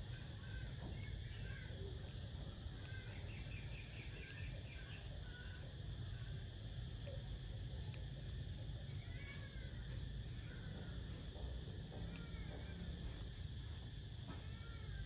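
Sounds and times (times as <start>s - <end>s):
steady low hum: 0.0s - 15.0s
faint bird chirps: 0.1s - 6.2s.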